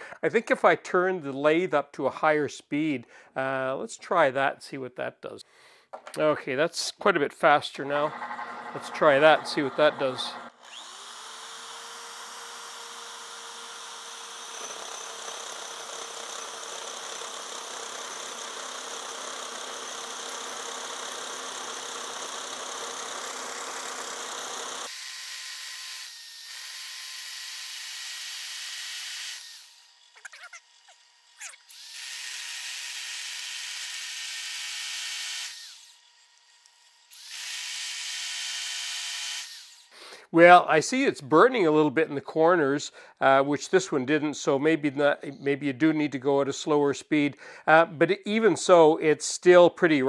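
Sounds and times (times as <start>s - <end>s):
drill hole saw cutting whir: 7.8s - 40.0s.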